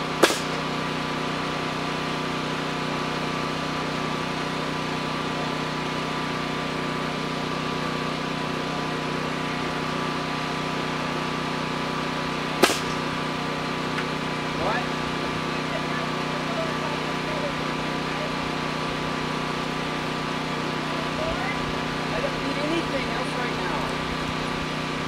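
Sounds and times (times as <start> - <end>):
engine idling: 0.0 - 25.0
sharp knocks: 0.2 - 0.6, 12.6 - 13.0.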